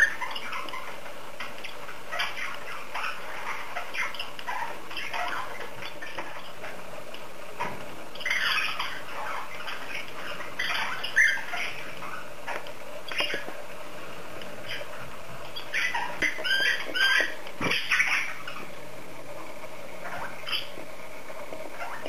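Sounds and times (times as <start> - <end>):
bird squawks and chirps: 0.0 - 6.7, 8.2 - 13.6, 14.6 - 18.8, 20.0 - 20.8, 21.8 - 22.0.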